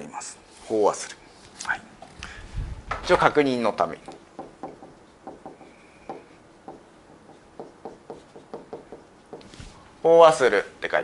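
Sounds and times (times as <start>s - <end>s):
marker writing on whiteboard: 3.8s - 9.8s.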